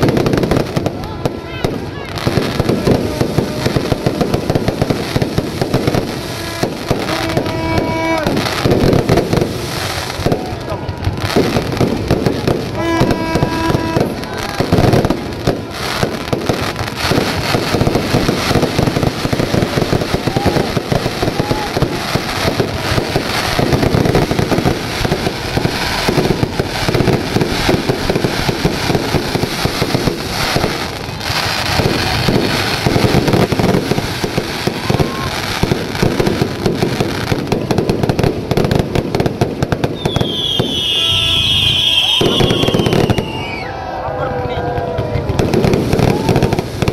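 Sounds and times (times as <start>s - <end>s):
fireworks bangs and crackles: 0.0s - 46.9s.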